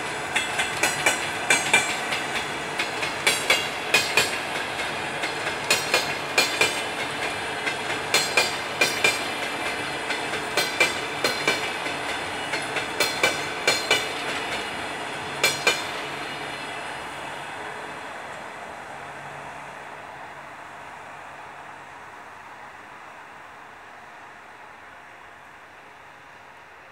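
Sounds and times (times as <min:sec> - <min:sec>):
train wheels clacking over joints: 0:00.0 - 0:16.2.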